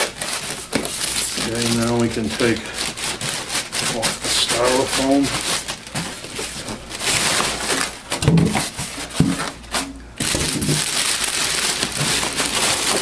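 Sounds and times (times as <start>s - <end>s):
foam rubbing: 0.0s - 7.9s
plastic bag crinkling: 0.0s - 13.0s.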